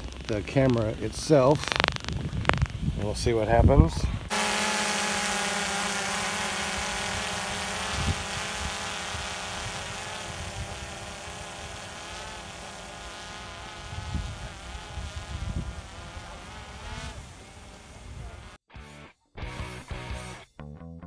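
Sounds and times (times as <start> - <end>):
drone propellers buzzing: 4.1 - 18.6.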